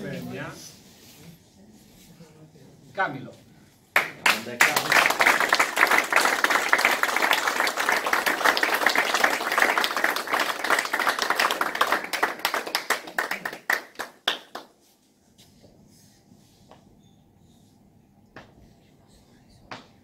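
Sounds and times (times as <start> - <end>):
crowd applauding: 4.0 - 14.7.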